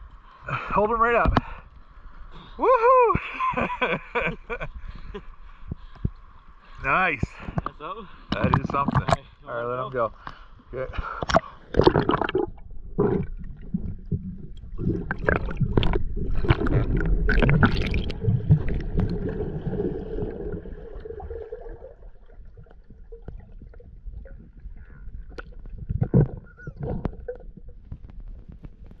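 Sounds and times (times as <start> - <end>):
underwater clicks and knocks: 1.2 - 1.6, 7.2 - 9.3, 11.1 - 19.4, 22.5 - 29.0
water gurgling underwater: 11.1 - 29.0.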